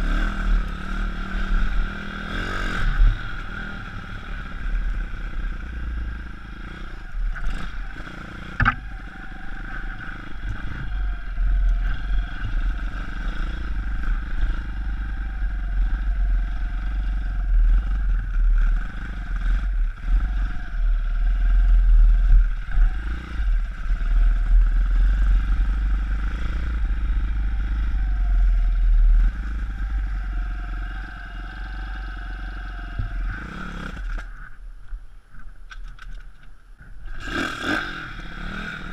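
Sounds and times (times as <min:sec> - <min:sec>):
sharp knocks from bike: 0:08.5 - 0:08.9.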